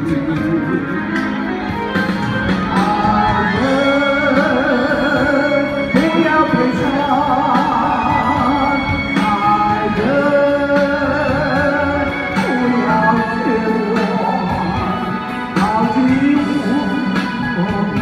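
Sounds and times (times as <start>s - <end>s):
instrumental backing track: 0.0s - 18.0s
woman singing ballad into microphone: 2.7s - 18.0s.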